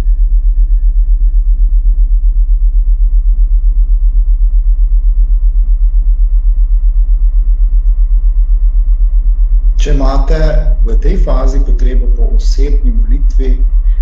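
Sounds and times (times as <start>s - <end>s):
deep throbbing hum: 0.0s - 14.0s
soft ambient music: 9.8s - 14.0s.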